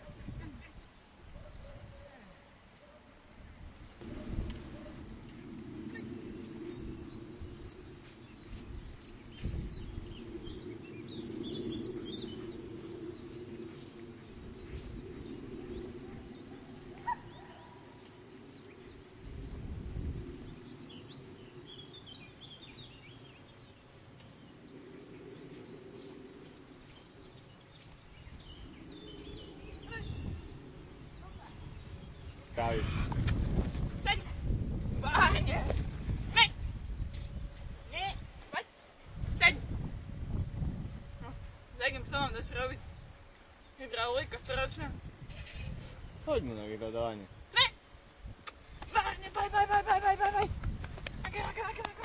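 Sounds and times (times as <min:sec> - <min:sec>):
small birds chirping: 0:00.0 - 0:35.7, 0:41.2 - 0:52.0
steady low hum: 0:02.4 - 0:52.0
low rumbles: 0:03.6 - 0:38.4.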